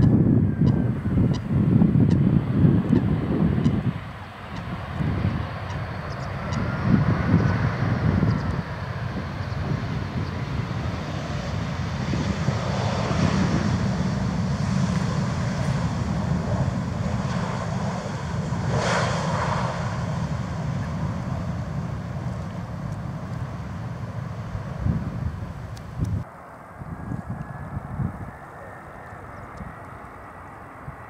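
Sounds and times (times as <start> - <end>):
jet engines rumbling: 0.0 - 31.0.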